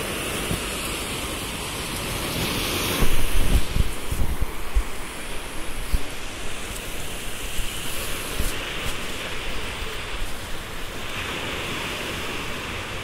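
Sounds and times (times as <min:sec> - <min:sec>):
surf breaking on beach: 0:00.0 - 0:13.0
wind thumps on microphone: 0:02.3 - 0:11.2.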